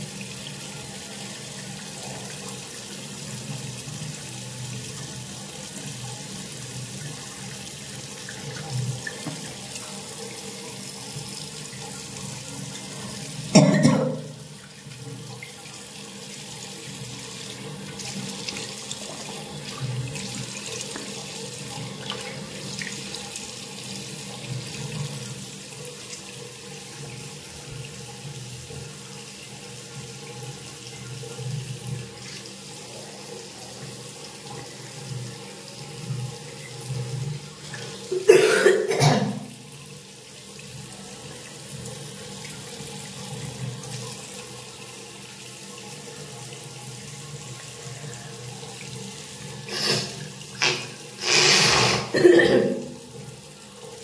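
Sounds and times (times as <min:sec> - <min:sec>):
tap running into a sink: 0:08.3 - 0:09.9
person clearing mucus: 0:13.5 - 0:14.3, 0:38.1 - 0:39.4, 0:49.7 - 0:53.0.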